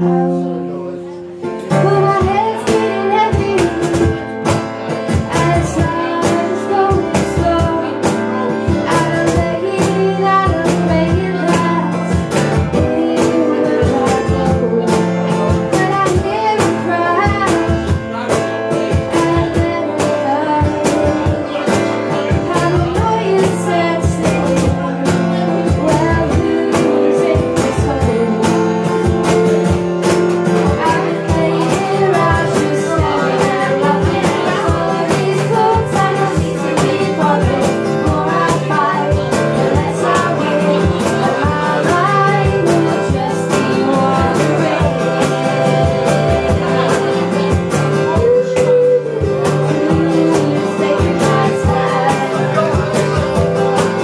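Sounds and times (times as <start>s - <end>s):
acoustic guitar strumming: 0.0s - 54.0s
woman singing: 1.5s - 54.0s.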